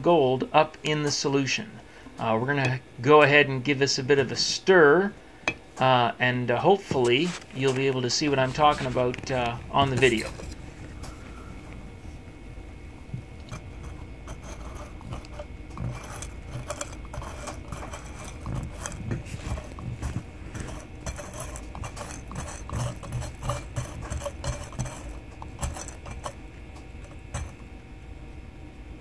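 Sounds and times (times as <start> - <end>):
rod scraping and clinking in glass jar: 13.5 - 26.4, 27.0 - 27.6.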